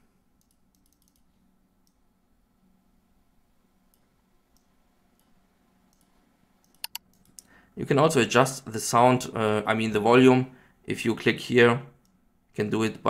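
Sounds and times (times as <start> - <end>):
computer mouse clicks: 0.4 - 2.0, 3.9 - 7.5.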